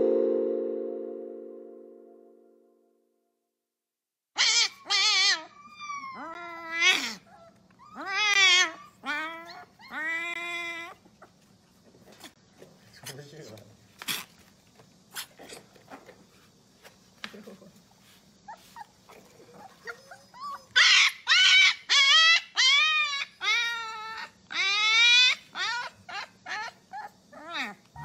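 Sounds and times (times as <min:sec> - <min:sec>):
puppy yipping and whining: 0:04.4 - 0:11.0, 0:19.6 - 0:28.0.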